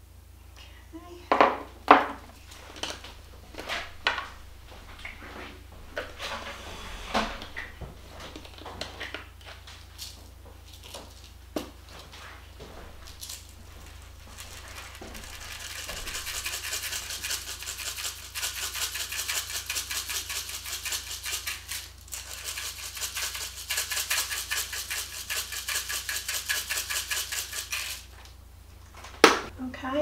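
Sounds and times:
spice grinder crunching: 13.0 - 28.4.

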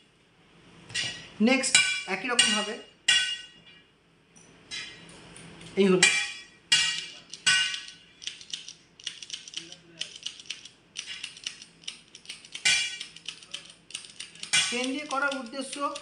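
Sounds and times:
lancing pen clicking: 8.2 - 16.0.

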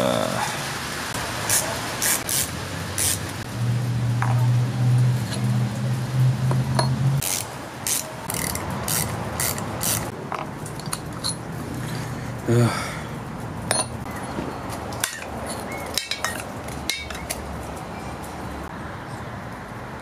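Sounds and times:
hand tool striking metal: 15.0 - 17.4.

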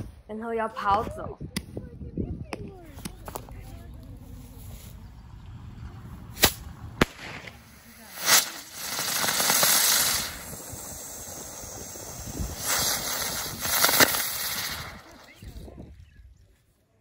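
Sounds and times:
firework bangs: 6.3 - 15.6
ground firework hissing: 6.3 - 15.7.

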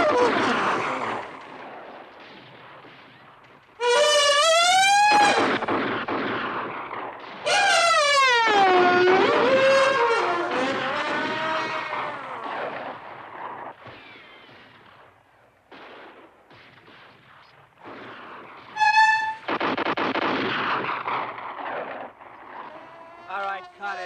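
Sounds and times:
gunfire: 0.0 - 24.0
high bugle note: 18.8 - 19.4.

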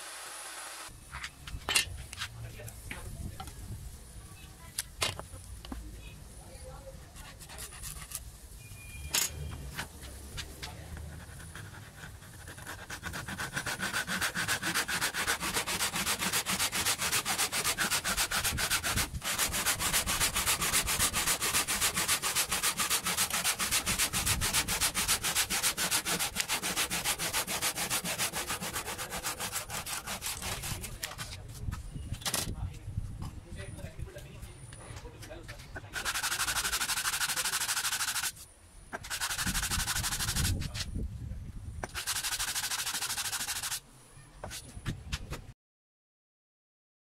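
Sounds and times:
handsaw cutting board: 11.0 - 31.1, 35.9 - 38.4, 39.0 - 40.6, 41.8 - 43.8.

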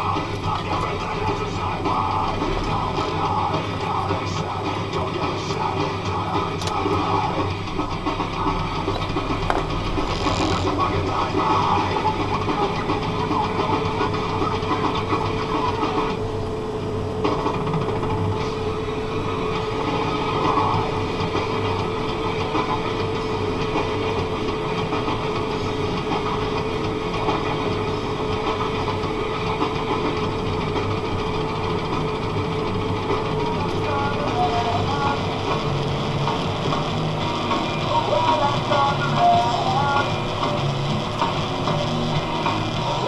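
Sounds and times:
steady tone: 0.0 - 43.0
tractor diesel engine running: 0.0 - 43.0.

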